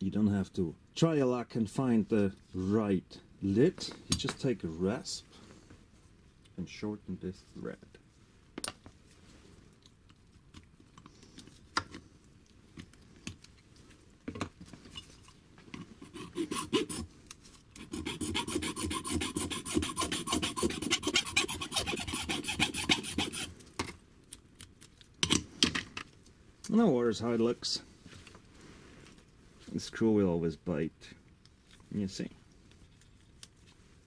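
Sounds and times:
file rasping metal: 16.0 - 17.1, 17.8 - 23.5.

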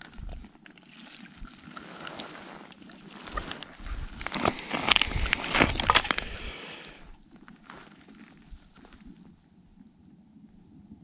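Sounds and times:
wind buffeting microphone: 0.0 - 0.6, 3.2 - 7.3.

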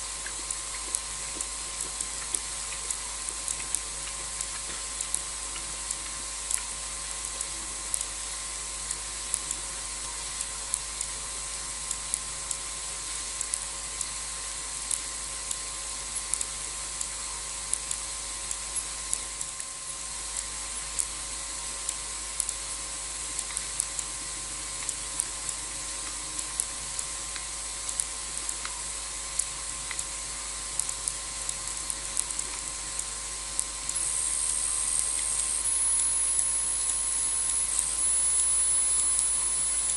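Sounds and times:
steady night hiss: 0.0 - 39.9
sharp ticks: 30.8 - 39.9
thin high steady tone: 33.8 - 39.9.

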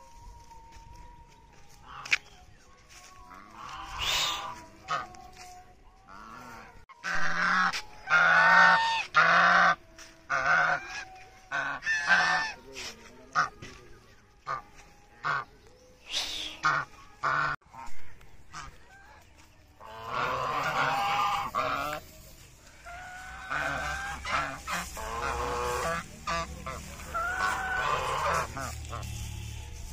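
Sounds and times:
geese honking: 1.3 - 29.9.

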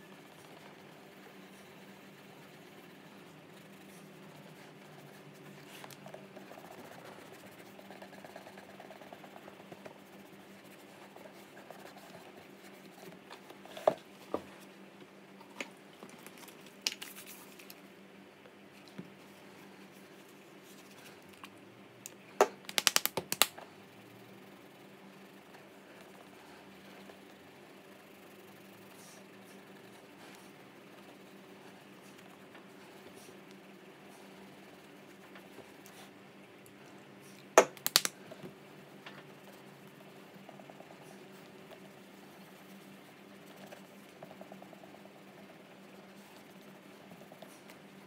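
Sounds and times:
small items clicking: 22.7 - 23.5, 37.8 - 38.1.

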